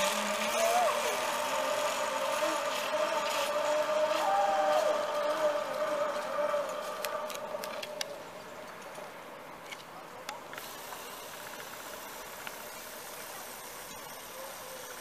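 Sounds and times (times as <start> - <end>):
zipline pulleys whining on cable: 0.0 - 8.5, 10.6 - 15.0
faint hiss: 7.9 - 15.0.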